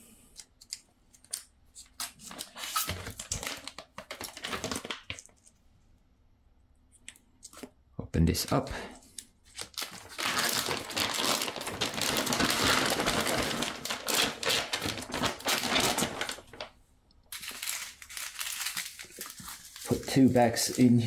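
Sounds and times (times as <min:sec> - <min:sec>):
plastic bag crackling: 0:02.8 - 0:05.3, 0:09.6 - 0:21.0.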